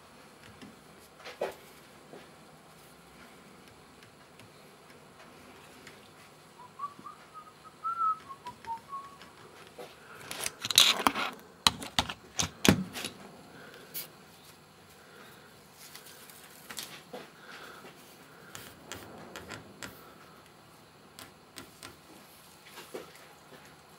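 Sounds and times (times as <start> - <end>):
person whistling: 6.6 - 9.3.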